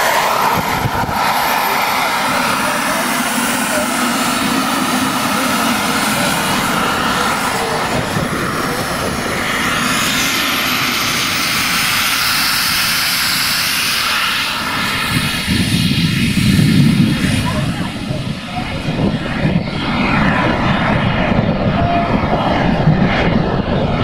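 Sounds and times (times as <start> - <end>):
model jet engines hissing and whining: 0.0 - 24.0.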